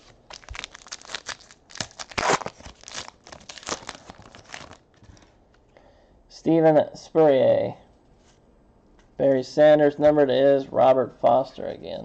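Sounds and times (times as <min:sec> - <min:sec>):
foil wrapper crinkling: 0:00.0 - 0:04.9.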